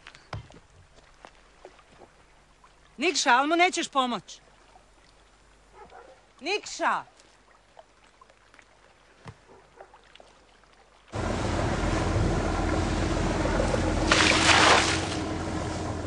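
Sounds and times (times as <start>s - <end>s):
water rushing along hull: 0.0s - 16.0s
motorboat engine hum: 11.0s - 16.0s
splash: 12.8s - 15.9s.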